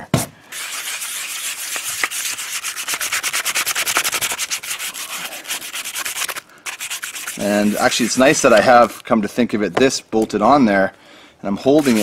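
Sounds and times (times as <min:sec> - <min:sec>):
sandpaper rubbing on plastic: 0:00.5 - 0:09.1, 0:11.6 - 0:12.0.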